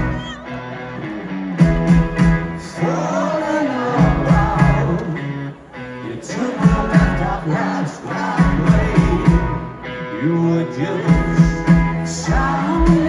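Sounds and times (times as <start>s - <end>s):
live rock band: 0.0s - 13.0s
man singing lead vocal: 2.6s - 13.0s.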